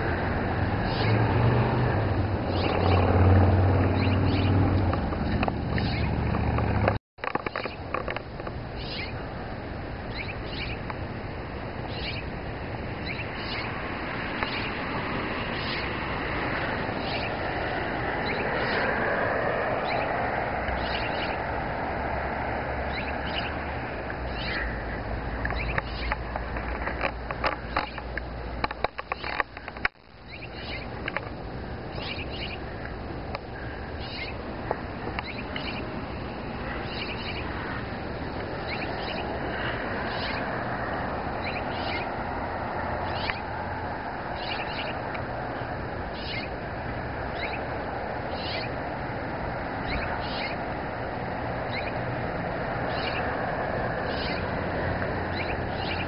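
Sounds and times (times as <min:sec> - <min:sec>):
steady background noise: 0:00.0 - 0:56.0
high bird chirps: 0:00.8 - 0:01.2, 0:02.5 - 0:03.1, 0:03.9 - 0:04.6, 0:05.2 - 0:06.2, 0:07.4 - 0:07.8, 0:08.8 - 0:09.2, 0:10.1 - 0:10.8, 0:11.9 - 0:12.3, 0:13.0 - 0:14.8, 0:15.5 - 0:17.5, 0:18.2 - 0:19.0, 0:19.8 - 0:20.2, 0:20.8 - 0:21.5, 0:22.9 - 0:24.7, 0:25.5 - 0:26.2, 0:30.3 - 0:31.0, 0:31.9 - 0:32.7, 0:34.0 - 0:34.4, 0:35.2 - 0:35.9, 0:36.7 - 0:37.6, 0:38.6 - 0:39.4, 0:40.0 - 0:40.5, 0:41.4 - 0:42.2, 0:43.0 - 0:43.5, 0:44.4 - 0:45.0, 0:46.2 - 0:46.5, 0:47.3 - 0:47.7, 0:48.3 - 0:48.8, 0:49.8 - 0:50.6, 0:51.7 - 0:52.0, 0:52.9 - 0:53.3, 0:54.0 - 0:54.5, 0:55.3 - 0:56.0.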